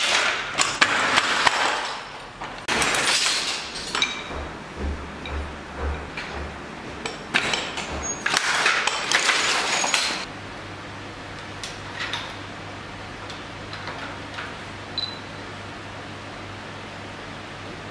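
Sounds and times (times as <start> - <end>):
loom clattering and clicking: 0.0 - 10.3
steady low hum: 2.6 - 9.4.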